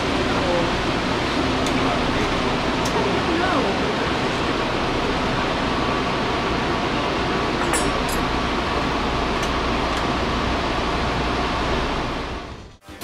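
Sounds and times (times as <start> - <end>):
tableware clinking: 7.6 - 8.3.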